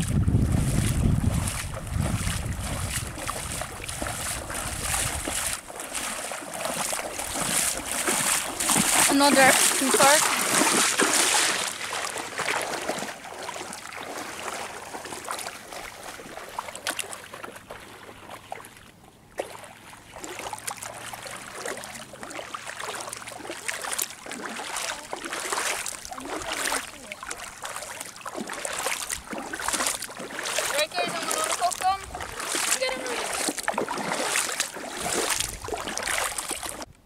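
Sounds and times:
water sloshing and splashing: 0:00.0 - 0:37.0.

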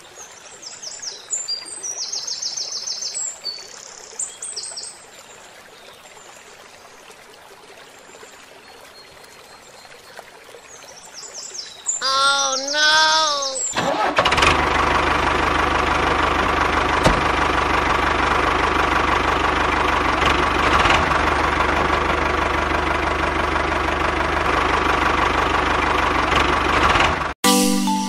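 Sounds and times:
xylophone-like melody: 0:27.4 - 0:28.0.

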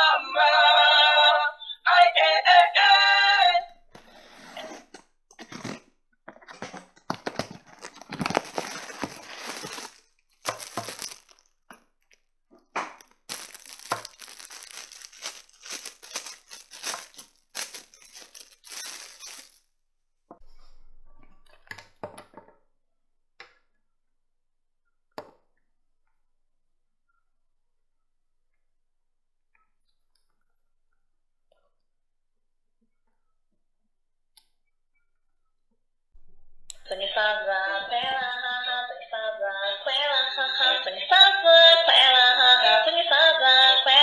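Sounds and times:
plastic bag crinkling: 0:06.6 - 0:12.1, 0:13.0 - 0:19.7.

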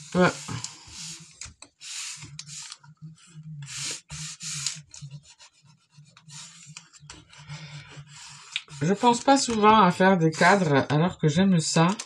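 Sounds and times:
hands rubbing tape onto paper: 0:00.0 - 0:09.6
tape ticks and crackles: 0:00.4 - 0:09.8.

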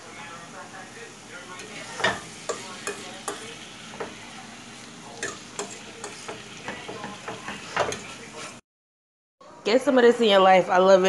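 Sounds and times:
food sizzling in frying pan: 0:00.0 - 0:08.6
utensil knocking and scraping pan: 0:05.2 - 0:08.6.

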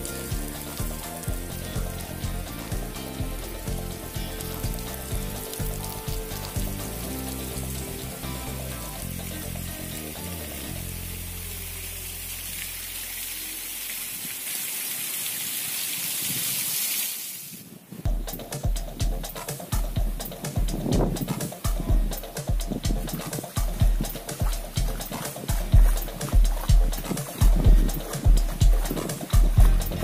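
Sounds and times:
background music: 0:00.0 - 0:12.5, 0:18.1 - 0:30.0
waterfall splashing on rock: 0:00.0 - 0:30.0.

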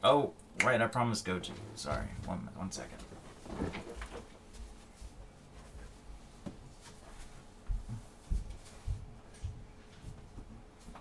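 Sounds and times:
footstep thumps: 0:01.5 - 0:11.0
rustling getting up from chair: 0:03.0 - 0:11.0.

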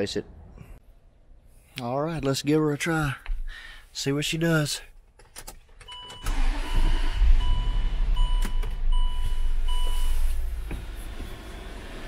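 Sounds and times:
car engine starting and running: 0:05.1 - 0:12.0.

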